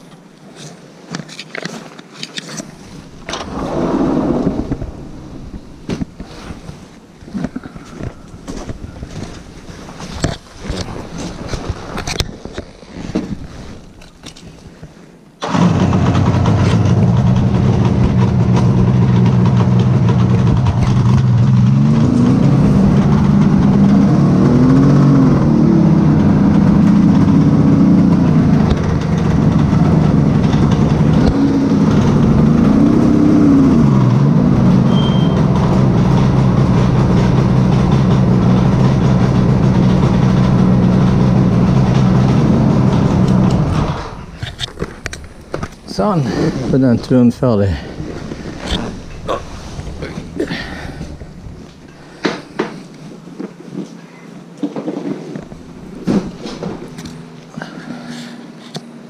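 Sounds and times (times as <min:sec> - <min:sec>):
motorcycle engine idling and revving: 0:15.4 - 0:54.7, 0:55.4 - 0:59.0.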